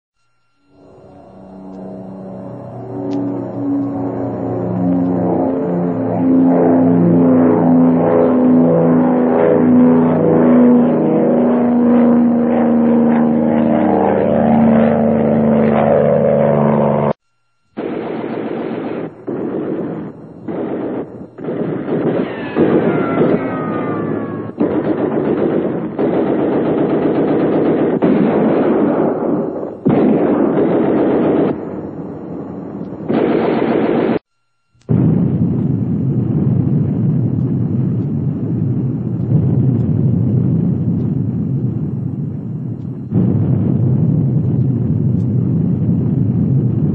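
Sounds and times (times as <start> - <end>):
aircraft piston engines droning: 0.2 - 28.1
falling bomb whistles: 17.6 - 46.7
machine-gun fire: 17.8 - 34.2.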